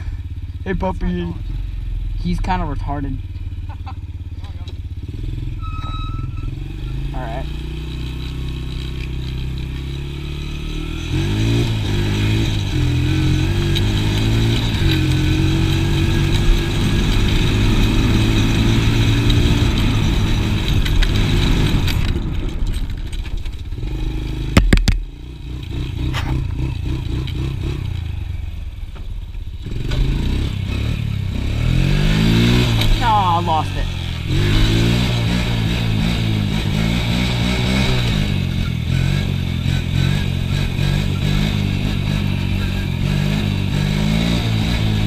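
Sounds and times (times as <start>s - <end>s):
small engine revving: 4.7s - 22.2s, 29.6s - 45.0s.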